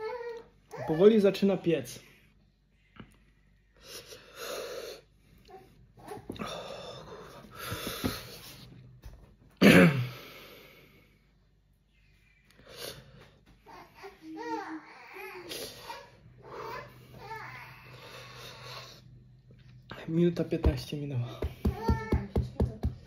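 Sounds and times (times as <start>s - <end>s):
man coughing exhale: 9.6s - 10.3s.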